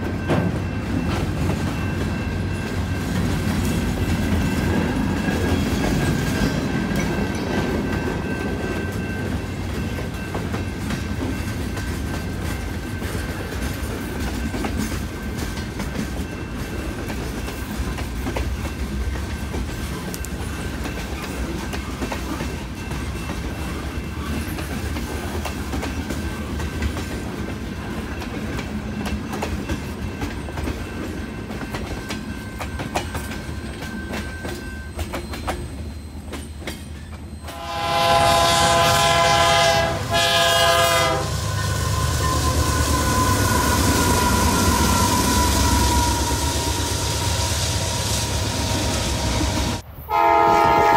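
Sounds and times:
freight train rumbling: 0.0s - 50.9s
high-pitched tone: 41.3s - 49.8s.

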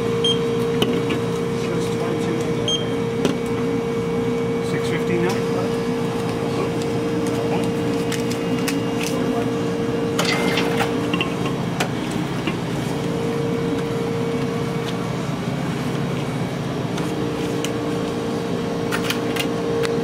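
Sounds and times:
machinery hum: 0.0s - 20.0s
barcode scanner beep: 0.2s - 0.5s, 2.7s - 3.0s.

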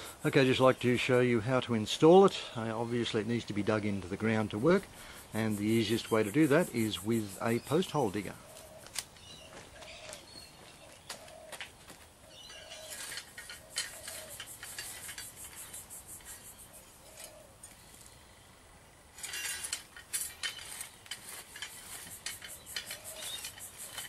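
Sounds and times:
light footsteps: 8.5s - 12.2s
auger scraping through soil: 12.6s - 18.2s, 19.1s - 24.0s
faint bird chirps: 22.2s - 24.0s
bird low call: 22.6s - 24.0s.

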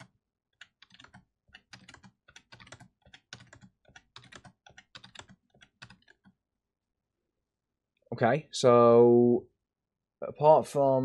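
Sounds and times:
typing on computer keyboard: 0.0s - 6.4s.

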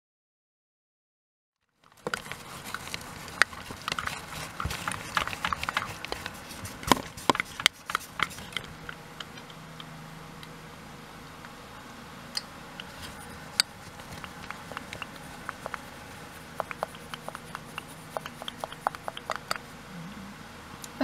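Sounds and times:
objects clicking and knocking: 1.8s - 9.6s, 12.9s - 19.6s
faint steady hum: 1.8s - 21.0s.

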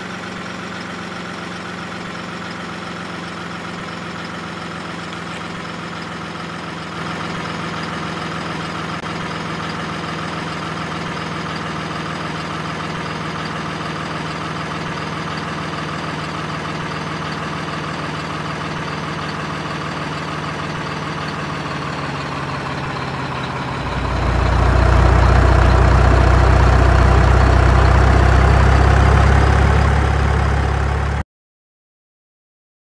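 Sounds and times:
heavy engine idling: 0.0s - 31.2s.

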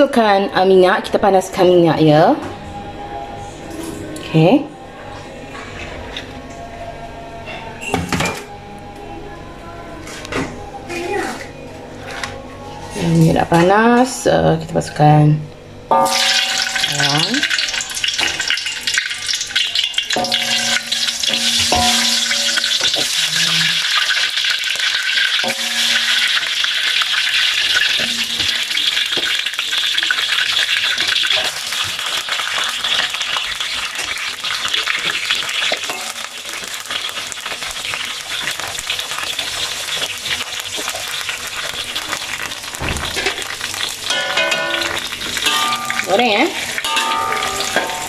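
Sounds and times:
food sizzling in hot oil: 15.9s - 48.0s.

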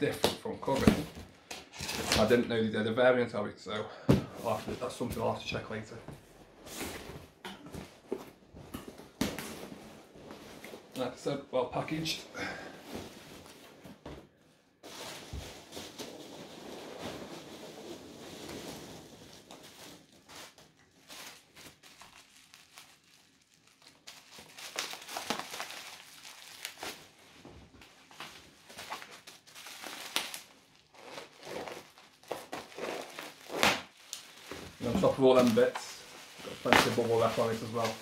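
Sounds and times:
packing material crinkling: 14.8s - 38.0s.

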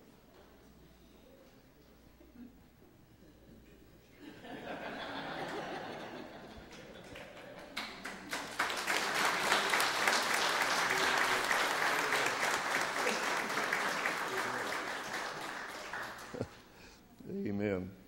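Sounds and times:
congregation applauding: 5.4s - 16.7s.

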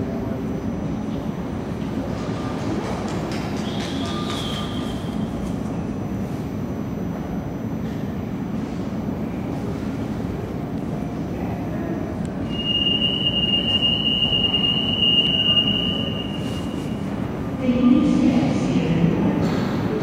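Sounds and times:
train equipment humming: 0.0s - 20.0s
high-pitched tone: 12.5s - 17.2s.

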